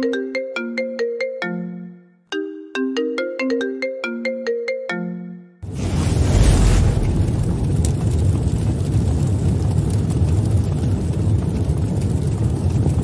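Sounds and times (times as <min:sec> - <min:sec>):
faint crackles: 0:05.6 - 0:13.0
low rumble with hiss: 0:05.7 - 0:10.0.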